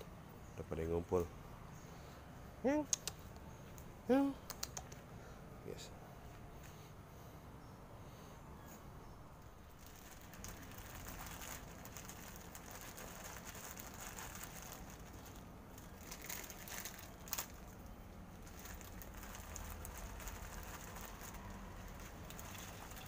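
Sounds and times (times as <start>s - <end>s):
packet rustling and crackling: 9.6s - 23.0s.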